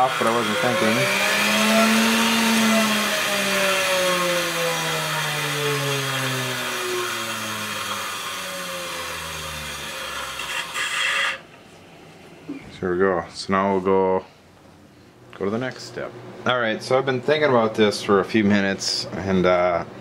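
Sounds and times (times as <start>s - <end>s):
bench grinder motor winding down: 0.0s - 11.4s.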